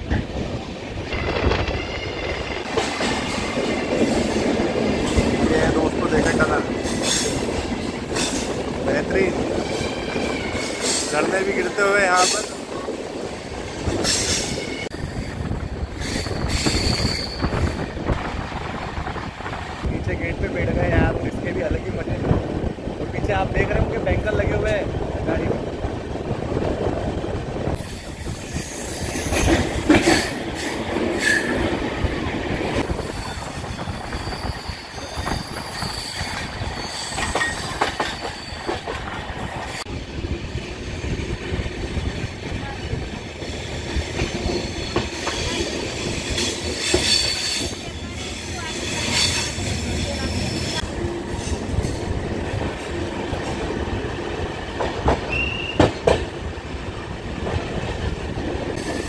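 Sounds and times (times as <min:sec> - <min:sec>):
train knocks and clicks: 0:00.0 - 0:59.0
train wheels rumbling on rails: 0:00.0 - 0:59.0
train wheels squealing: 0:09.6 - 0:11.2, 0:13.9 - 0:17.9, 0:27.8 - 0:31.7, 0:32.8 - 0:39.9, 0:43.3 - 0:50.8, 0:55.3 - 0:56.1, 0:58.8 - 0:59.0.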